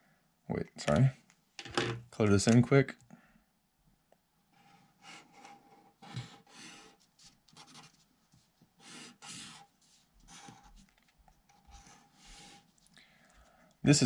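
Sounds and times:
marker strokes on paper: 0:06.1 - 0:12.9.

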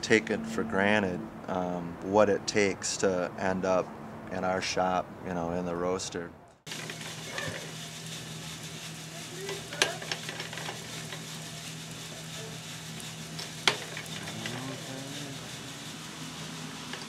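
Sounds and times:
light crackling: 0:06.6 - 0:17.0
coffee roaster humming and hissing: 0:06.7 - 0:17.0.

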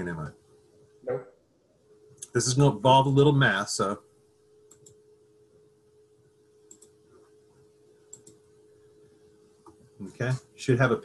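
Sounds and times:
faint steady hum: 0:00.0 - 0:11.0
computer mouse double-clicks: 0:04.7 - 0:05.0, 0:06.7 - 0:07.0, 0:08.1 - 0:08.4.

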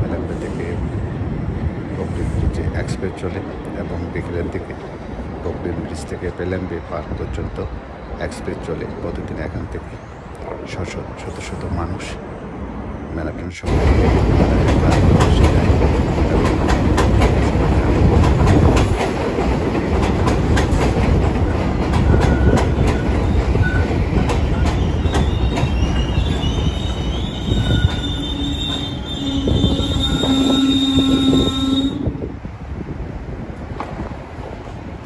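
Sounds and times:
subway train rumbling past: 0:00.0 - 0:35.0
wheels clicking over rail joints: 0:13.7 - 0:26.0
high wheel squeal: 0:22.0 - 0:32.1.

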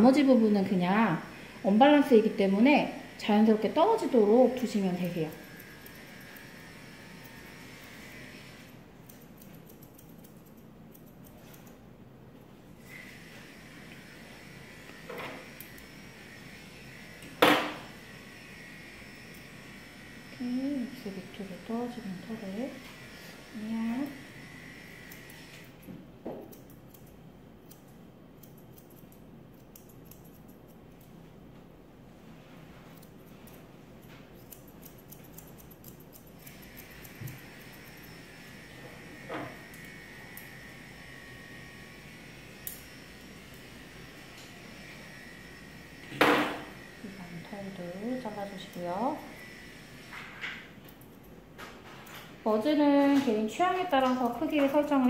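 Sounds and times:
faint high hum: 0:00.0 - 0:55.0
grooming shears snipping hair: 0:01.9 - 0:11.8, 0:12.8 - 0:16.5, 0:17.1 - 0:45.2, 0:46.0 - 0:55.0
scissors snipping: 0:09.0 - 0:11.8, 0:26.4 - 0:31.2, 0:33.0 - 0:38.0, 0:53.3 - 0:55.0.

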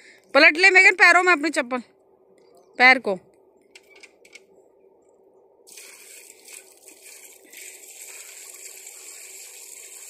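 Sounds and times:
water pouring and splashing: 0:05.7 - 0:10.0.

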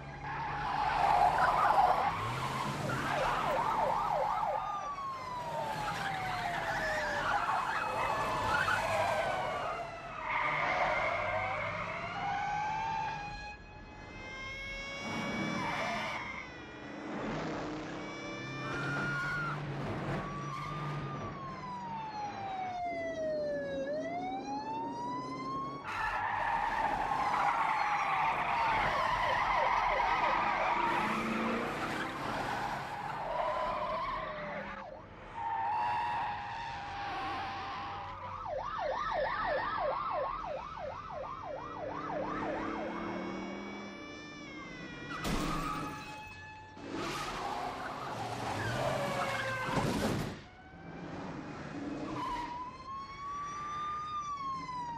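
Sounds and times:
fast yelping siren: 0:00.0 - 0:17.2, 0:17.9 - 0:49.8, 0:51.7 - 0:54.9
car engines running hard: 0:00.0 - 0:38.5, 0:39.2 - 0:46.0, 0:46.7 - 0:54.9
police sirens wailing: 0:00.0 - 0:54.9
tyres screeching: 0:14.0 - 0:16.9.

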